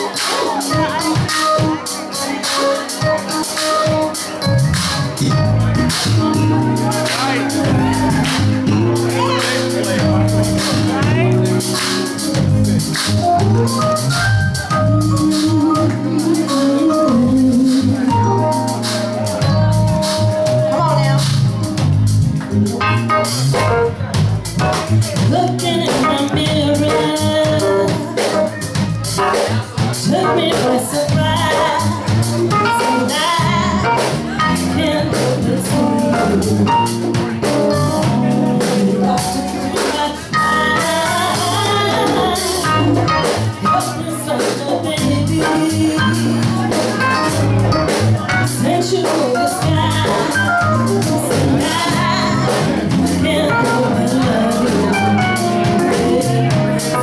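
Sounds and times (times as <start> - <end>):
woman singing into a microphone: 0.0 - 3.6, 15.0 - 18.8, 25.2 - 29.4, 30.0 - 47.4, 48.4 - 57.0
drum kit beat: 0.0 - 57.0
live band: 0.0 - 57.0.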